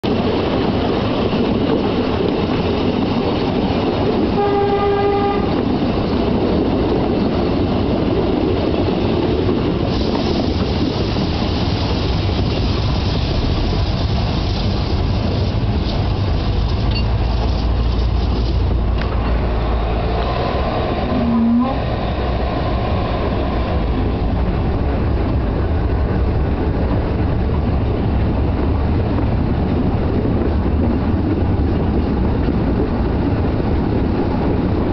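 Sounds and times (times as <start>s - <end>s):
train wheels clattering on rail: 0.0s - 34.9s
locomotive toot: 4.3s - 5.7s, 20.0s - 22.5s
brief lower tone: 21.1s - 21.8s.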